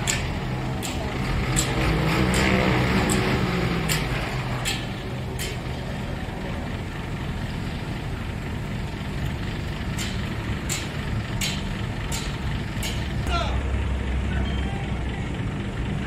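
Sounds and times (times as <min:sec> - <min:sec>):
sharp metallic clicks: 0:00.0 - 0:05.8, 0:09.2 - 0:13.3
crane diesel engine running: 0:00.0 - 0:16.0.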